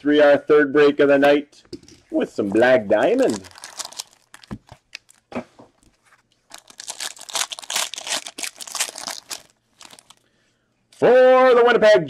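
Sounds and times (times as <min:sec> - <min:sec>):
foil wrapper tearing and crinkling: 0:03.2 - 0:05.2, 0:06.5 - 0:10.2.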